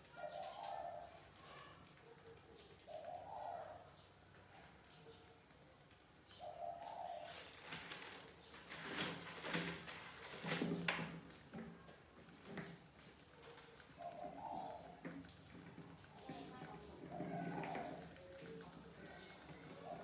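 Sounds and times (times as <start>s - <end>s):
pigeon cooing: 0.0s - 20.0s
rustling: 6.8s - 20.0s.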